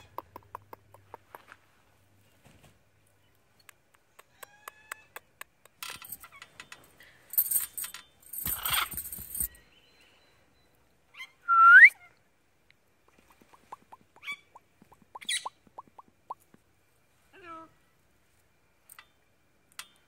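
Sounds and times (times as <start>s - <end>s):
rustling noise: 1.3s - 3.0s.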